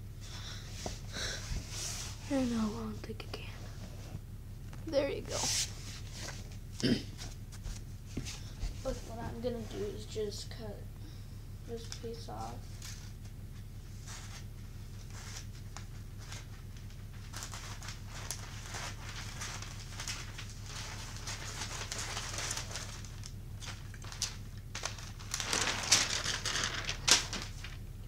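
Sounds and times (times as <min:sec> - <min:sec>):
low electrical hum: 0:00.0 - 0:28.0
wrapping paper rustling: 0:14.0 - 0:28.0.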